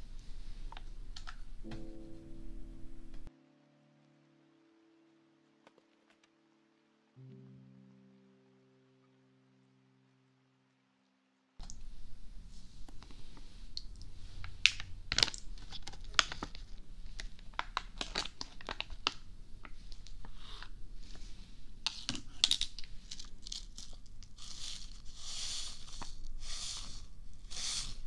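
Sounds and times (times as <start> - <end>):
tissue packet crinkling and tearing: 14.3 - 20.7, 21.8 - 28.0.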